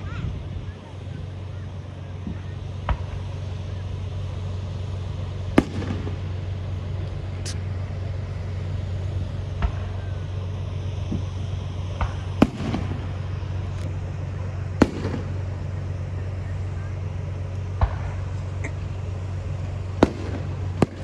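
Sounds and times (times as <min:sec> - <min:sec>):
low hum: 0:00.0 - 0:21.0
fireworks crackle: 0:00.7 - 0:21.0
fireworks bangs: 0:05.5 - 0:07.7, 0:11.0 - 0:13.8, 0:14.7 - 0:16.0, 0:17.7 - 0:18.9, 0:20.0 - 0:21.0.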